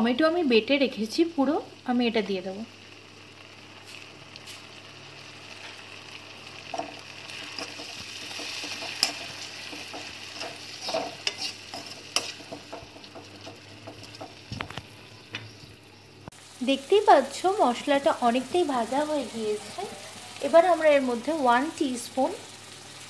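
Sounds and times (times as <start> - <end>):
paste sizzling in hot oil: 1.0 - 23.0
spatula scraping and knocking pan: 6.7 - 14.7.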